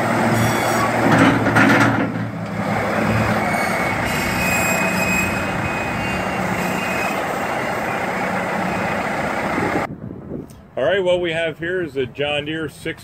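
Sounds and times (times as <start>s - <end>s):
loader hydraulics: 0.0s - 9.9s
tractor diesel engine running: 0.0s - 9.9s.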